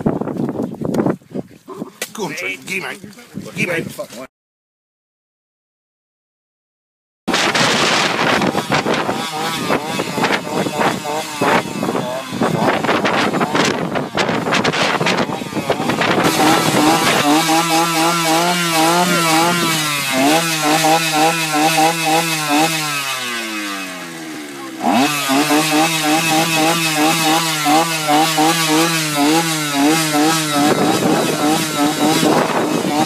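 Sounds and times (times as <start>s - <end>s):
small engine revving: 7.3s - 33.0s.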